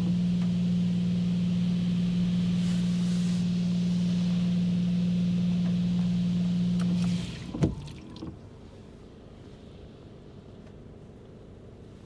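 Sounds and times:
car wash humming and hissing: 0.0 - 12.0.

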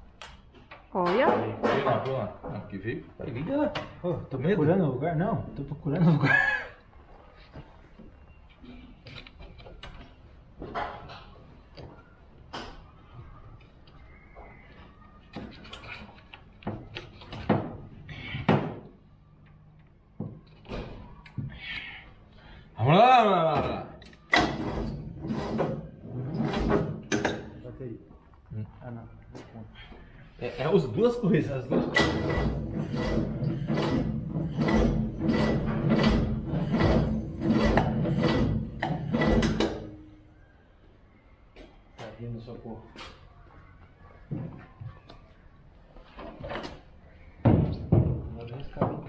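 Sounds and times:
irregular knocks and clunks: 15.4 - 19.5, 31.6 - 40.0, 46.2 - 49.0
rhythmic rasping scraping strokes: 32.0 - 39.7.

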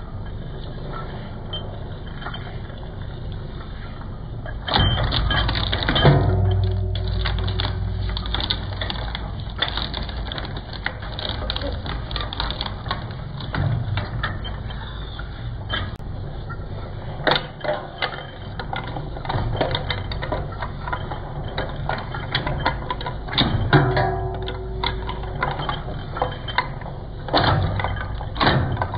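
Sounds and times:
shredder cutters crunching: 5.2 - 13.5.

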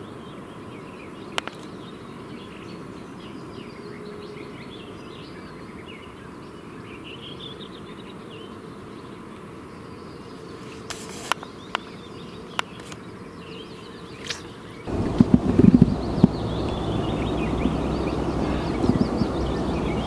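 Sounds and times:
small birds chirping: 0.0 - 15.0, 15.6 - 20.0
outdoor ambience: 0.0 - 20.0
sharp clicks: 1.4 - 1.7, 12.5 - 13.0.

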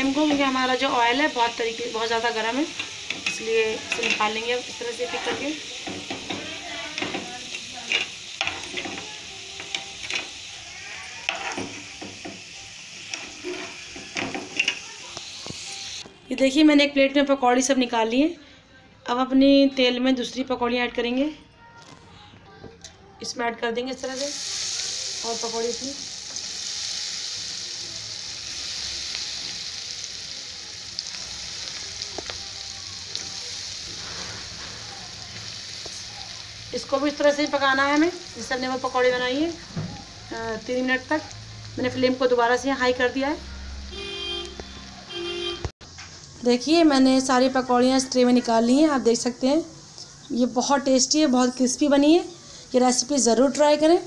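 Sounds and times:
hot oil sizzling: 0.0 - 16.9, 23.3 - 54.0
spoon scraping and knocking pan: 2.7 - 10.4, 11.2 - 15.7.

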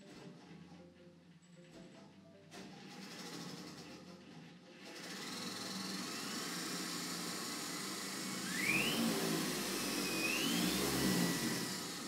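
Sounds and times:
electric motor whirring: 4.9 - 12.0
thin whine rising in pitch: 8.3 - 12.0.

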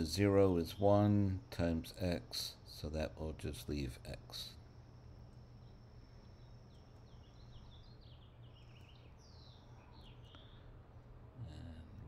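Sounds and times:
low room hum: 0.0 - 12.0
faint bird chirps: 4.3 - 12.0.

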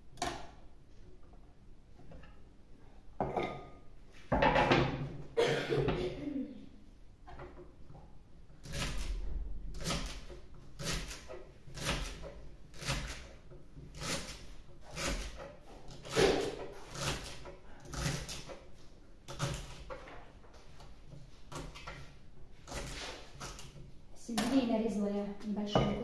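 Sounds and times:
knife cutting celery on board: 8.6 - 9.2, 9.8 - 18.6, 19.3 - 20.0, 21.5 - 23.8.

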